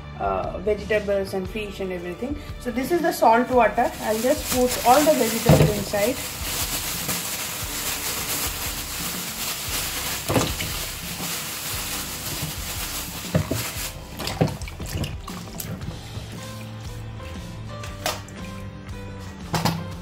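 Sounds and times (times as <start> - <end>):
onions splashing and knocking: 3.9 - 18.6
tap water running into sink: 10.0 - 18.6.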